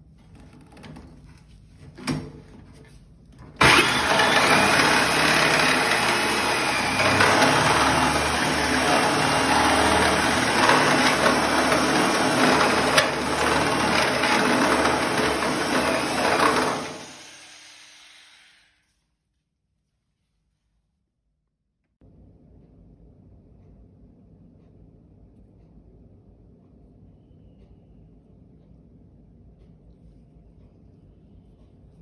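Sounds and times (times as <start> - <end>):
drill click: 3.6 - 18.6
power drill grinding through metal: 3.6 - 18.8.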